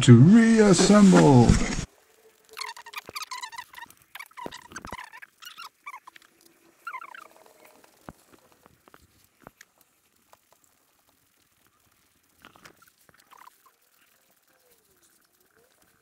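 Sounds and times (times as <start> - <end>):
animal chirping: 2.6 - 7.4.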